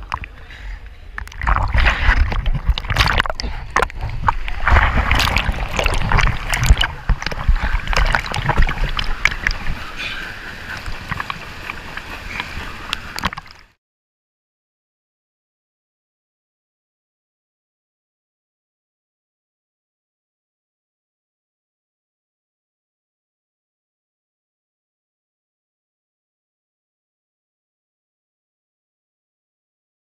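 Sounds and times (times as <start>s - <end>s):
pool water splashing: 0.0s - 13.8s.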